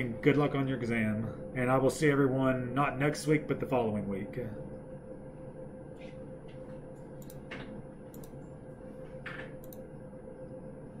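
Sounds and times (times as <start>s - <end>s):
steady low hum: 0.0s - 11.0s
mouse and keyboard clicks: 7.2s - 8.4s.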